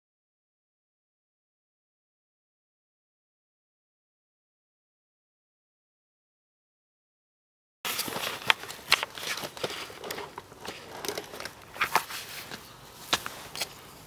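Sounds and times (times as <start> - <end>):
fabric and bags rustling: 7.9 - 14.0.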